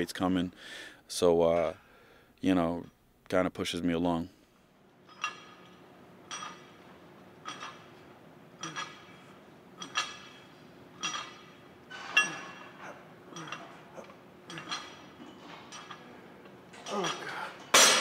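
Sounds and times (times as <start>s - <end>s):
weight plates clinking on barbell: 5.1s - 6.8s, 7.4s - 7.9s, 9.8s - 10.4s, 11.0s - 12.7s.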